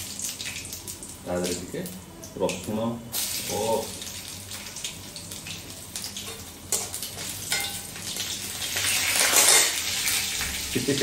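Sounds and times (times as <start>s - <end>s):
garlic and chillies sizzling in oil: 3.1s - 11.0s.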